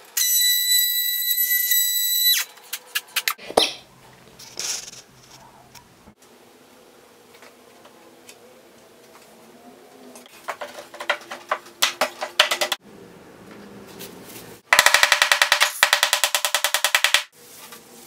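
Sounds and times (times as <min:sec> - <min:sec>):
hardwood pieces knocking: 0:10.3 - 0:12.8.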